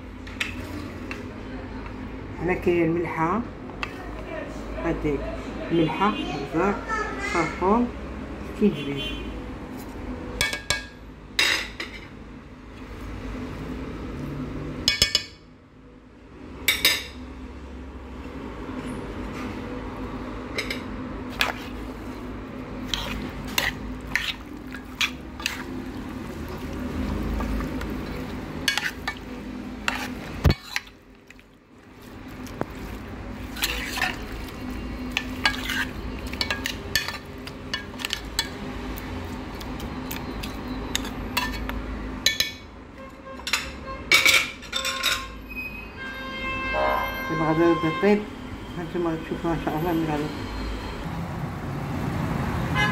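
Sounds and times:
utensil stirring food in pot: 0:20.6 - 0:42.5
utensil clinking against pot: 0:33.5 - 0:38.6.

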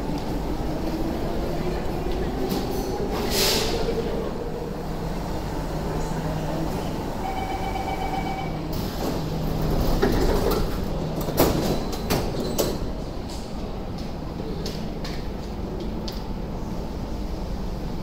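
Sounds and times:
train doors sliding shut: 0:02.2 - 0:04.2, 0:08.6 - 0:13.5
door warning tone: 0:07.2 - 0:08.7.

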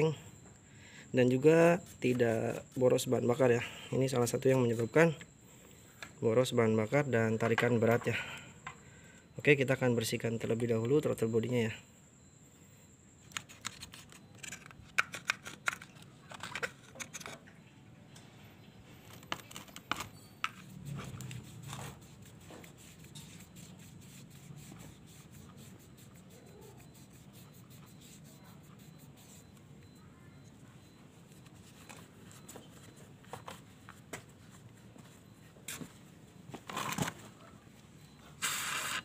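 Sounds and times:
cloth rag rubbing metal: 0:20.7 - 0:29.5.

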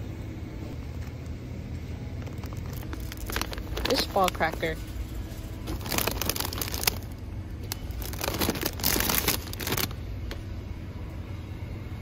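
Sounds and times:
low steady hum: 0:00.0 - 0:12.0
plastic snack bags crinkling: 0:02.2 - 0:10.0.

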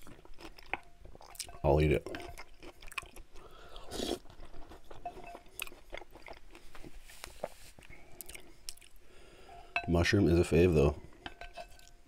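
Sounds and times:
wet mouth eating sounds: 0:00.0 - 0:09.0
napkin rubbing across mouth: 0:06.9 - 0:07.8.

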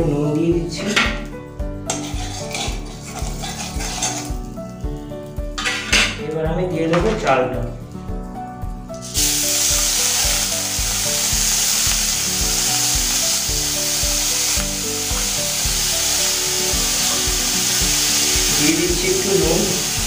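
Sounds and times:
soft background music: 0:00.0 - 0:20.0
rice sizzling in hot oil: 0:01.9 - 0:04.6, 0:09.0 - 0:20.0.

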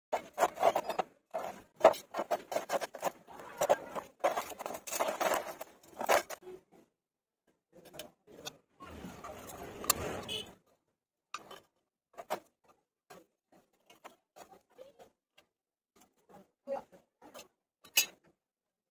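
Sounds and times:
metal scraping and knocking: 0:00.1 - 0:06.4.

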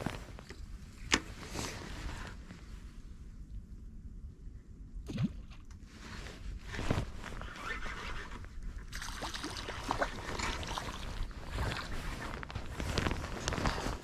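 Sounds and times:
water swishes and rustles: 0:00.0 - 0:03.2, 0:05.0 - 0:14.0
river water sloshing: 0:08.8 - 0:12.6.

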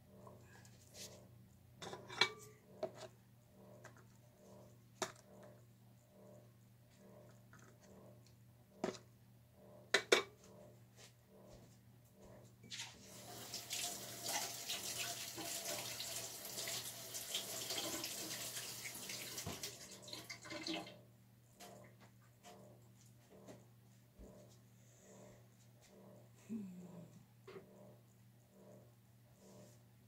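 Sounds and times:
tap water running into sink: 0:13.1 - 0:20.9
steady low hum: 0:21.1 - 0:30.0.

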